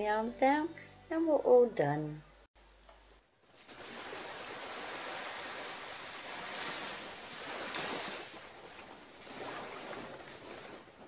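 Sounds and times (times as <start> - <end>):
sea waves washing ashore: 3.5 - 11.0.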